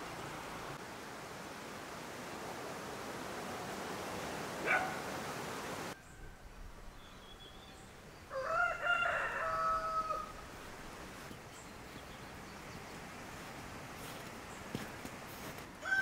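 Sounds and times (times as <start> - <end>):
rooster crowing: 8.3 - 10.5, 15.8 - 16.0.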